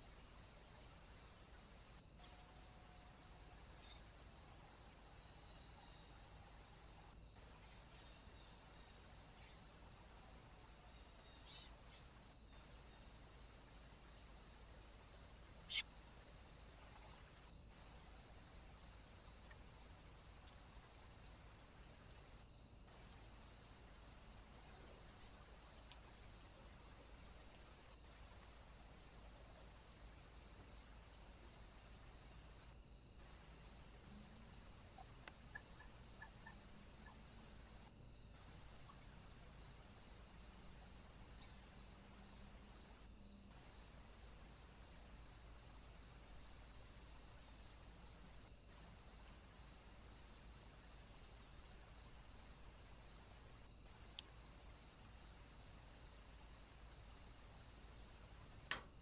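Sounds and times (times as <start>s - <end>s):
crickets chirring: 0.0s - 59.0s
sharp click: 58.7s - 59.0s.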